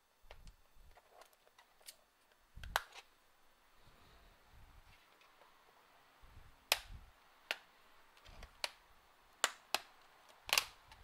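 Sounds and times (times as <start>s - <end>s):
sharp plastic clicks and snaps: 1.2s - 3.0s, 6.7s - 8.8s, 9.4s - 11.0s.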